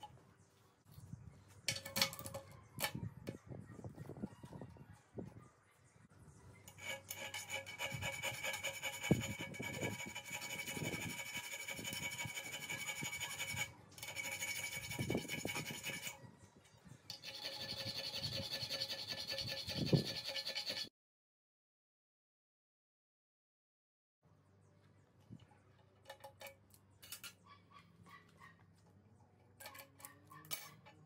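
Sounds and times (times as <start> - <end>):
file rasping on metal: 6.7 - 16.2, 17.1 - 20.9.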